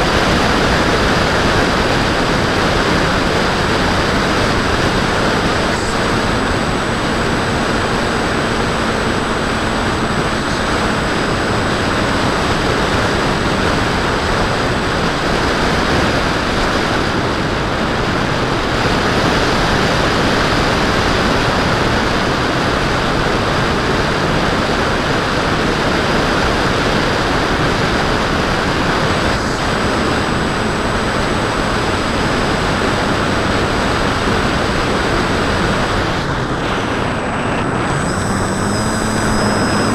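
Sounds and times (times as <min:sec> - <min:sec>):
faint high whine: 0:00.0 - 0:39.9
wind rushing over microphone: 0:00.0 - 0:39.9
electric motor and propeller running: 0:24.9 - 0:39.9.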